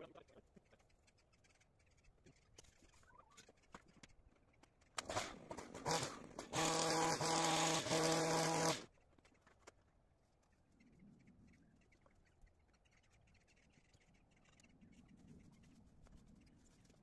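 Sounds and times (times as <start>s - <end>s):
hedge trimmer revving: 5.0s - 8.9s.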